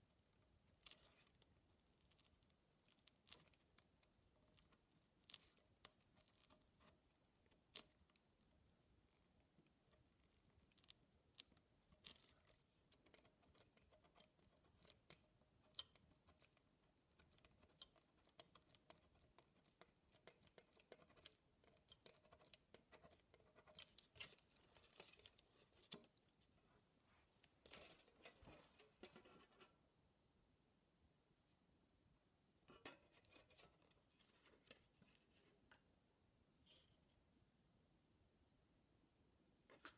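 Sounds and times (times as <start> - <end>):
pen scratching metal foil: 12.0 - 26.0.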